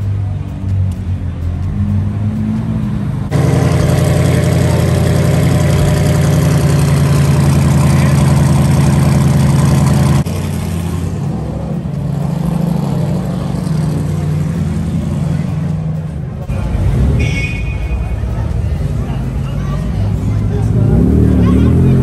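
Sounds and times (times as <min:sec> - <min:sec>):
sports car engine droning: 0:00.0 - 0:17.5, 0:18.1 - 0:22.0.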